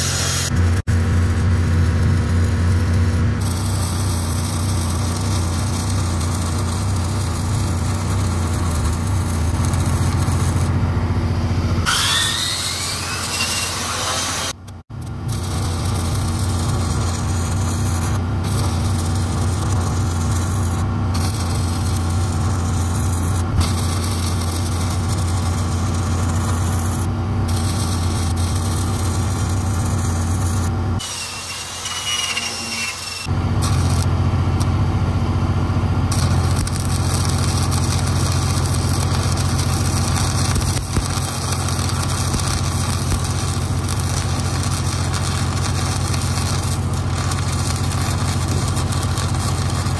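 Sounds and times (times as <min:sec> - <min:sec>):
welding arc crackling: 0:00.0 - 0:49.9
welding machine engine hum: 0:00.0 - 0:49.9.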